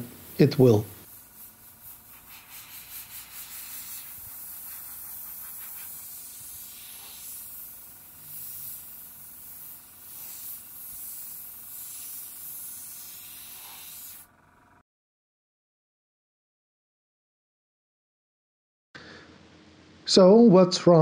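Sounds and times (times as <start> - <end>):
airbrush spraying hiss: 0.0 - 14.3.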